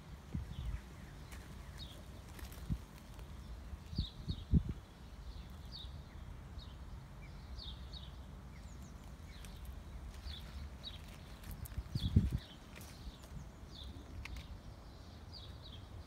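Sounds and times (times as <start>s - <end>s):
small bird chirping: 0.4s - 16.0s.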